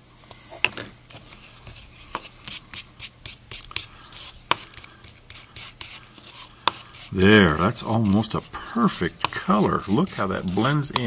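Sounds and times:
putty knife scraping and tapping: 1.6s - 11.0s.

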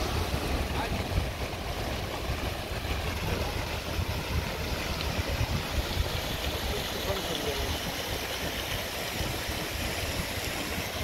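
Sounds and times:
outdoor rumble and hiss: 0.0s - 11.0s.

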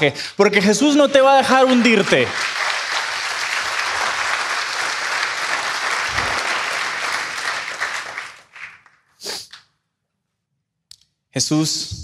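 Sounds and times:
congregation applauding: 0.6s - 9.1s.

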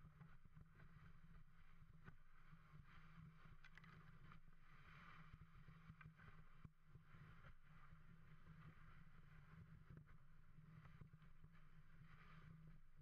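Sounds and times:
small clicks: 3.6s - 4.4s.

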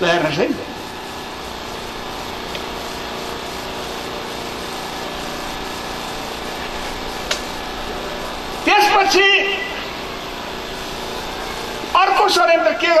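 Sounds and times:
mechanical hum with hiss: 0.0s - 13.0s
sharp click: 2.5s - 2.7s, 7.2s - 7.5s.

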